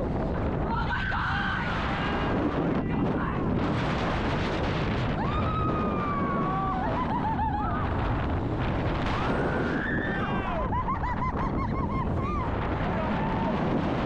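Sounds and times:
wind buffeting microphone: 0:00.0 - 0:14.0
riders screaming: 0:05.2 - 0:08.1, 0:09.0 - 0:13.8.

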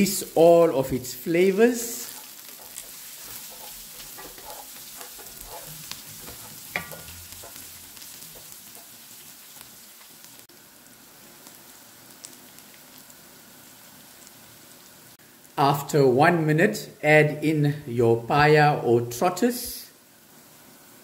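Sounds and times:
wooden spoon scraping a pan: 0:00.0 - 0:10.1
onions sizzling in hot oil: 0:00.0 - 0:15.8, 0:19.7 - 0:21.0.

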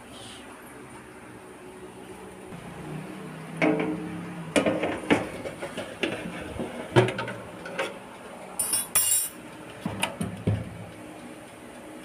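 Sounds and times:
metal tray and oven rack clinking: 0:08.6 - 0:09.4.

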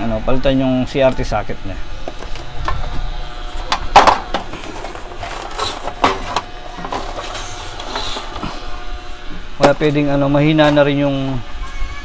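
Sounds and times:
plastic scraping and rubbing: 0:03.8 - 0:08.5.

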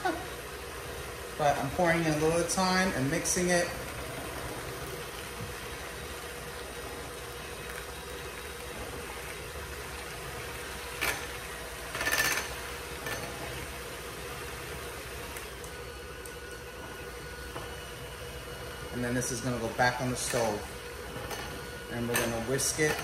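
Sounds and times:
electric hand mixer running: 0:00.0 - 0:23.0
milk pouring: 0:00.2 - 0:22.9.

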